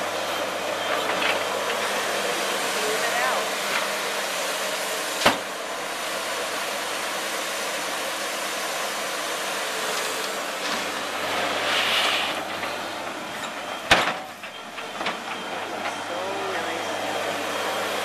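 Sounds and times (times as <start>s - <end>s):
diesel loader engine running: 0.0s - 18.0s.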